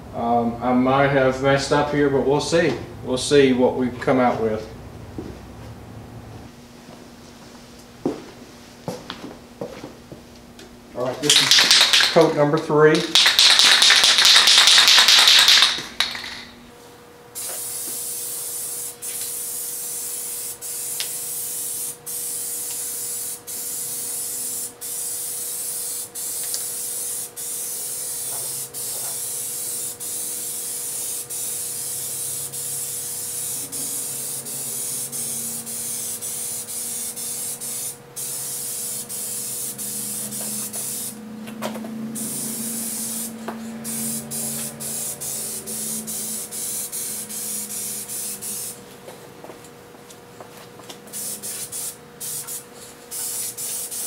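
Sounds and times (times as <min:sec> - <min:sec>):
spray paint hissing: 0:11.2 - 0:12.3, 0:13.0 - 0:16.4, 0:17.4 - 0:41.2, 0:42.2 - 0:48.8, 0:51.1 - 0:54.0
spray can rattling: 0:11.2 - 0:16.5, 0:17.4 - 0:41.1, 0:42.2 - 0:48.8, 0:51.1 - 0:54.0.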